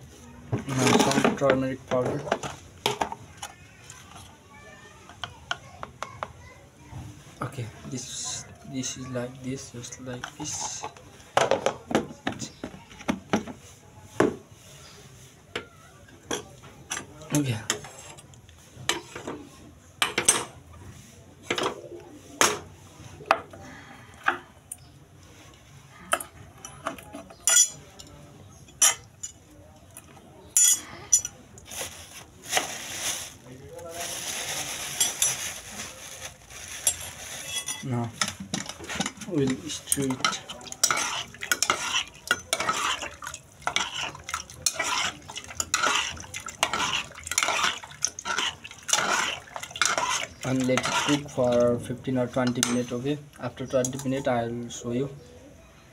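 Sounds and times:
spoon scraping metal pot: 36.8 - 51.7.

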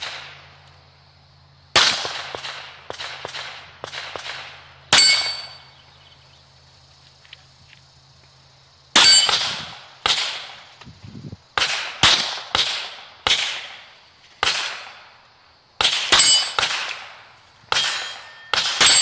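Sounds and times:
pistol shots: 0.0 - 0.6, 1.7 - 5.6, 9.0 - 10.6, 11.6 - 15.1, 15.8 - 19.0
steel plate ringing clang: 4.9 - 5.7, 9.0 - 9.6, 16.1 - 16.7, 17.7 - 19.0.

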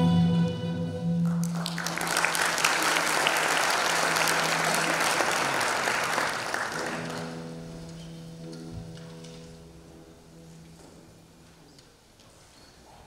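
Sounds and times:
music: 0.0 - 2.5, 3.6 - 11.9
audience applauding: 1.2 - 7.7.

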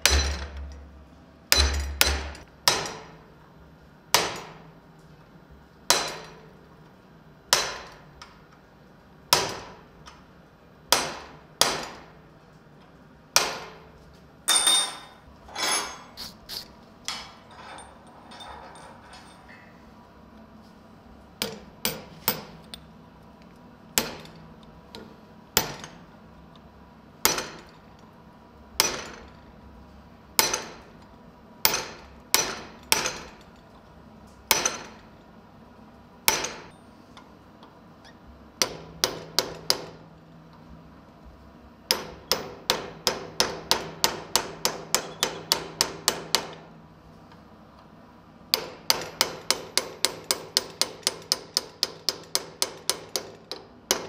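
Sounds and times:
hammer ringing on metal punch: 0.0 - 0.8, 1.5 - 3.1.

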